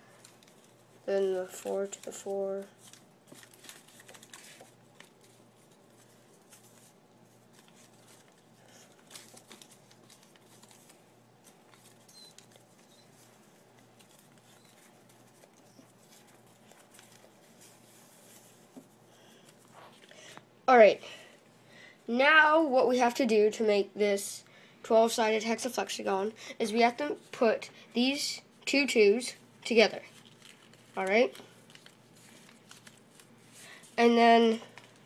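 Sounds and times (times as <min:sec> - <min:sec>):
paper rustling and crinkling: 0:00.0 - 0:20.4, 0:29.8 - 0:35.0.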